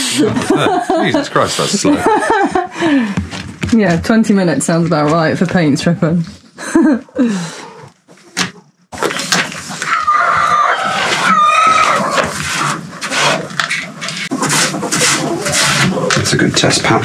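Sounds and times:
scraper scraping off paint: 11.0s - 16.4s.

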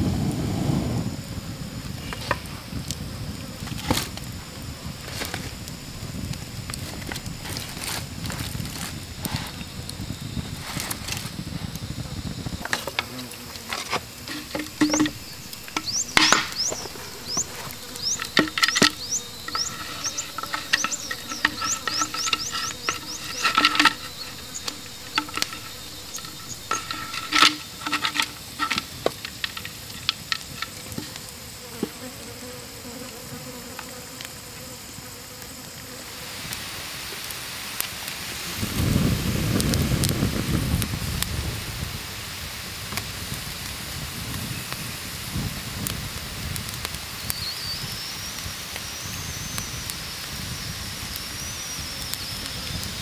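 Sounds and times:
campfire crackling and popping: 0.0s - 31.4s.

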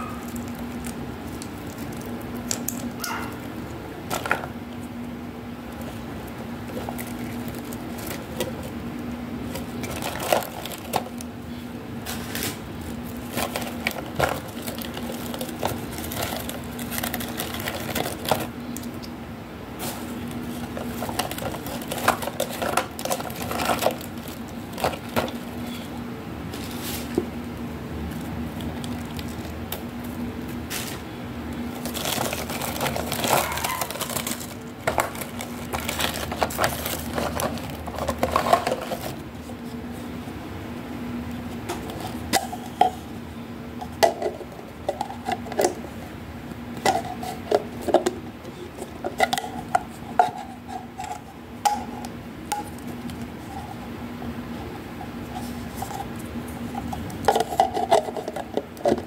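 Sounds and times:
steady low hum: 0.0s - 59.0s
net bag and packaging rustling: 9.4s - 11.3s, 12.0s - 18.6s, 19.8s - 25.9s, 28.1s - 40.0s.

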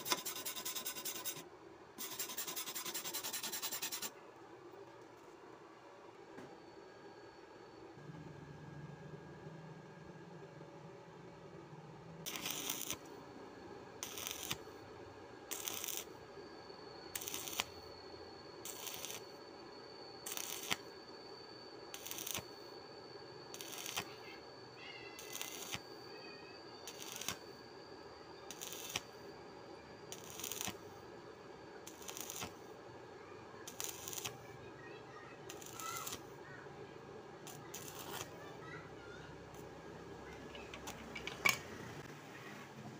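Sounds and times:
welding arc crackling and hissing: 0.0s - 1.4s, 12.3s - 13.1s, 14.0s - 14.7s, 15.5s - 16.2s, 17.1s - 17.9s, 18.6s - 19.4s, 20.2s - 21.0s, 21.9s - 22.6s, 23.5s - 24.4s, 25.2s - 25.9s, 26.8s - 27.5s, 28.5s - 29.2s, 30.1s - 30.9s, 31.8s - 32.8s, 33.6s - 34.4s, 35.4s - 36.4s, 37.4s - 38.4s.

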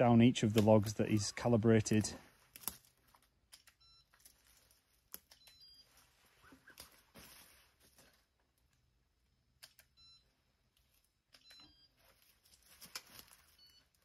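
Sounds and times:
calipers clicking and rustling: 0.2s - 6.0s.

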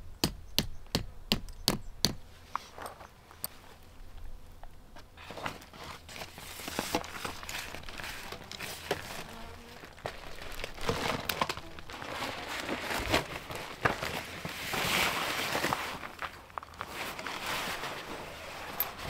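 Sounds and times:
tent fabric crinkling and rustling: 5.2s - 19.0s.

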